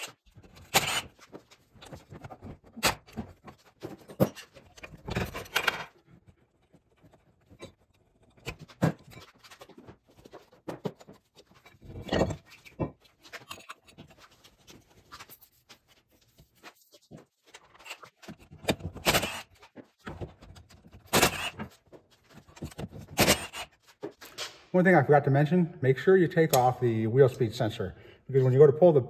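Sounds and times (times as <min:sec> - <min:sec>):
metal tools clinking and clanking: 0:07.5 - 0:14.4.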